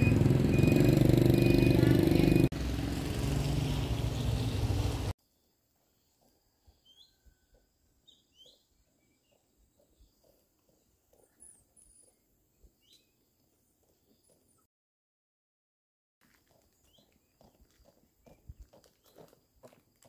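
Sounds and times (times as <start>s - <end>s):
faint birds chirping: 3.7s - 14.7s
footsteps on wet pavement: 16.2s - 20.0s.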